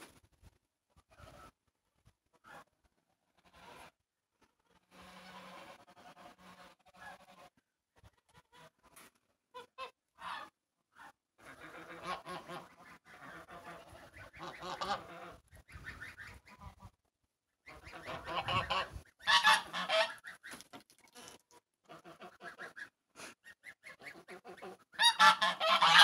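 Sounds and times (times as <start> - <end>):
geese honking: 4.9 - 7.6, 9.6 - 16.9, 17.6 - 20.6, 23.6 - 26.0.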